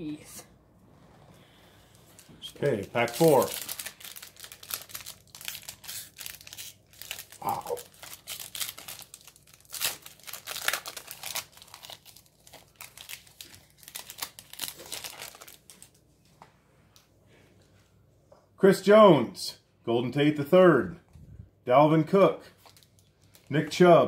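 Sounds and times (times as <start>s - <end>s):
foil wrapper crinkling and tearing: 2.1s - 16.0s, 22.5s - 23.6s.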